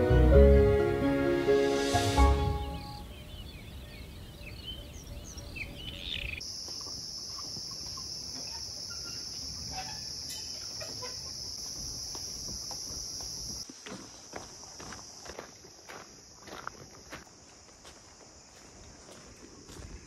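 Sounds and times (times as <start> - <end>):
birds chirping and calling: 2.6 - 6.4.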